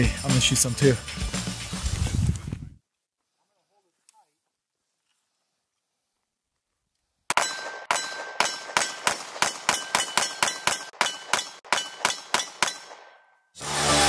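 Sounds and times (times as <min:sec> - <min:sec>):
music: 0:00.0 - 0:02.2, 0:13.6 - 0:14.0
pistol shots in rapid string: 0:07.3 - 0:13.2.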